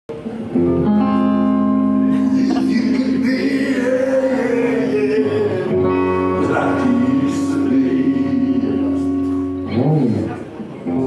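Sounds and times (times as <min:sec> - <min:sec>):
bass guitar: 0:00.3 - 0:11.0
electric guitars ringing: 0:00.4 - 0:11.0
man singing: 0:02.1 - 0:09.4.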